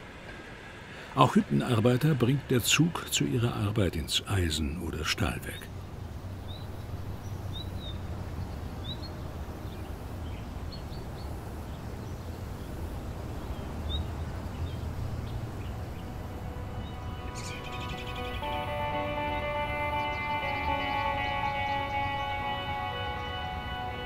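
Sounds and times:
bird chirps: 13.4s - 24.0s
music: 16.1s - 24.0s.

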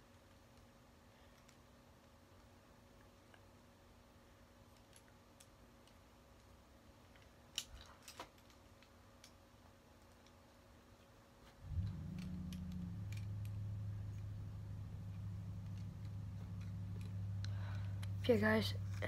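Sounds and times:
steady low hum: 8.7s - 19.0s.

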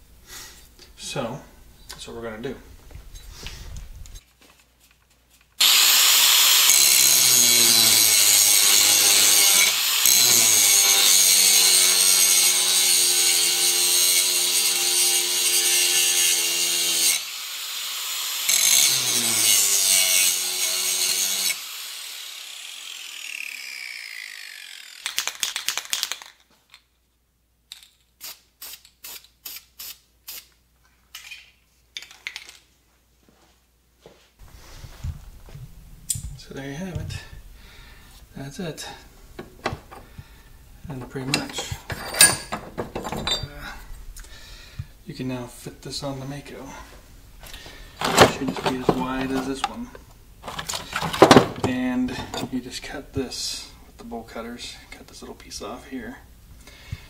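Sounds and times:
angle grinder grinding metal: 5.6s - 25.1s, 38.5s - 43.9s, 47.4s - 49.8s.

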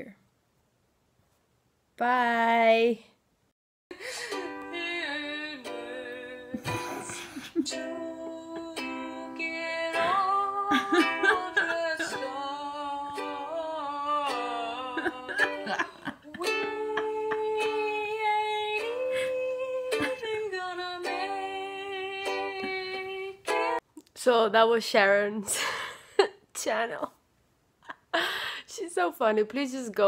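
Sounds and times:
woman singing: 3.9s - 23.8s
ukulele strumming: 4.1s - 23.8s.

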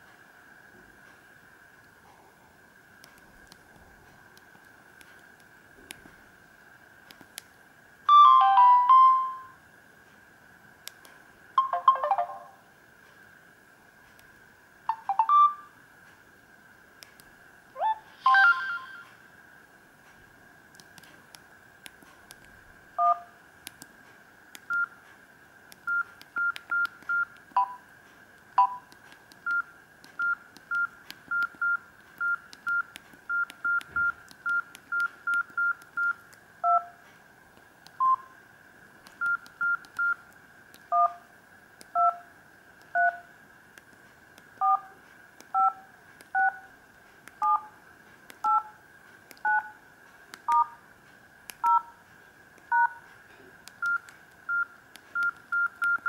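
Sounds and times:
two-tone touch-tone beeps: 11.6s - 12.5s, 14.9s - 15.7s.

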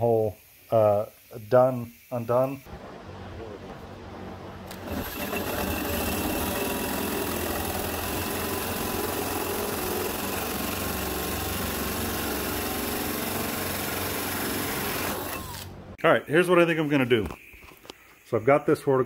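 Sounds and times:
power drill hole saw cutting metal: 4.7s - 15.7s.

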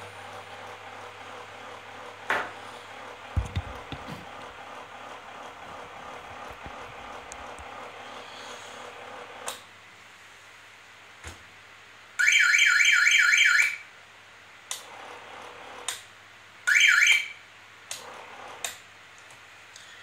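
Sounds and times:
steady whir: 0.0s - 9.7s
electronic alarm siren whooping: 12.2s - 13.8s, 16.7s - 17.4s.

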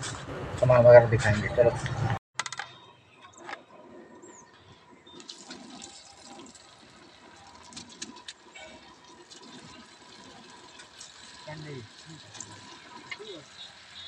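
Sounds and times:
oil sizzling and crackling: 5.1s - 14.0s.

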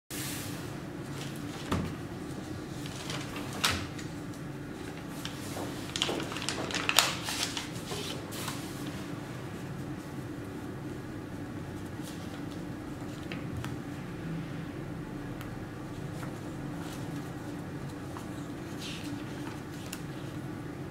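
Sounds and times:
steady low hum: 0.1s - 20.9s
paper rustling and crinkling: 1.0s - 11.0s, 11.6s - 13.7s, 15.9s - 20.5s.

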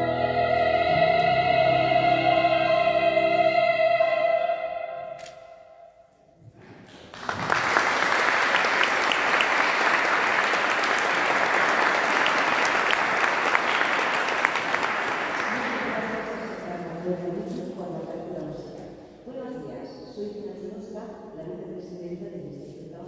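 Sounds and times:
audience applauding: 6.8s - 16.3s.

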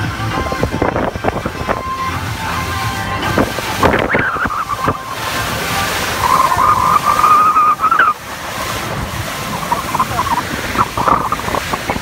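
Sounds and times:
rushing water: 0.0s - 12.0s
wind: 0.0s - 12.0s
wavering high held tone: 3.8s - 8.2s.

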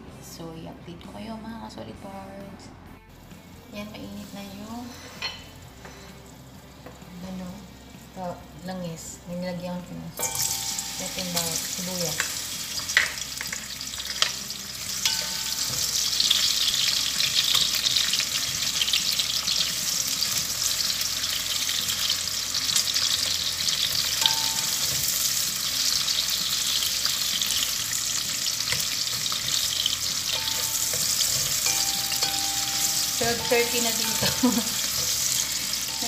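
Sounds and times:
onion and garlic sizzling in oil: 3.5s - 36.0s
spatula stirring and scraping: 26.0s - 36.0s.

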